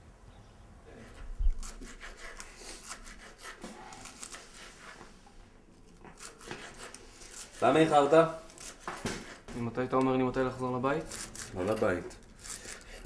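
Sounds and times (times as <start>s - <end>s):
knife slicing on cutting board: 1.0s - 5.2s, 6.1s - 7.7s.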